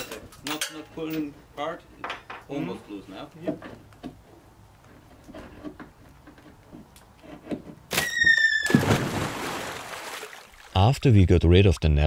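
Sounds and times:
sudden short squeal: 7.9 - 9.0.

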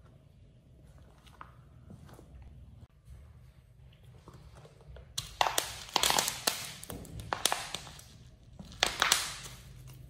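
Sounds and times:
bubble wrap popping: 5.2 - 10.0.

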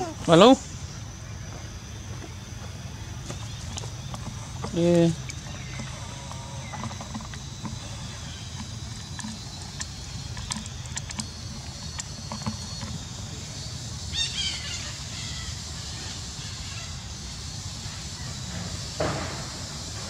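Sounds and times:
high-pitched chirping call: 7.8 - 18.4.

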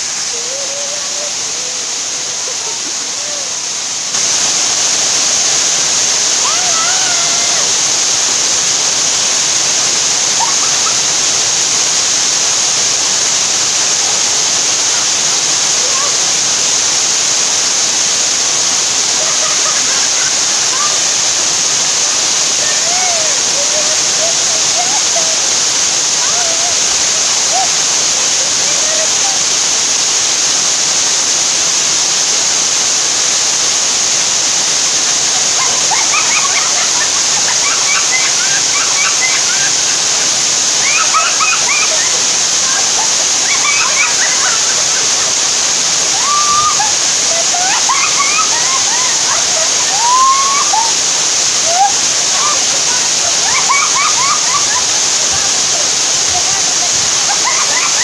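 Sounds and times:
waterfall rushing over rocks: 0.0 - 58.0.

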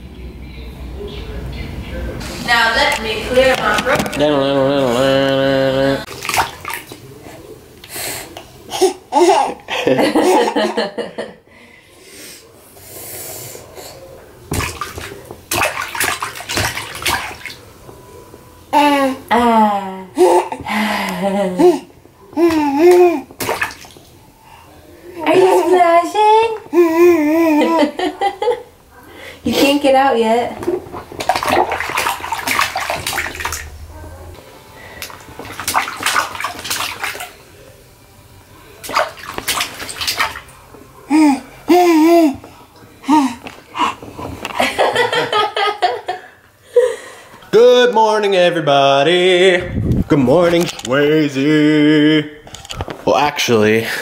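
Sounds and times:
baby splashing bath water: 2.2 - 11.0, 12.8 - 18.0, 18.8 - 28.7, 29.3 - 37.8, 38.7 - 46.2
baby laughing: 8.7 - 10.8, 20.2 - 20.7, 21.4 - 23.3, 26.7 - 28.6, 41.1 - 42.5.

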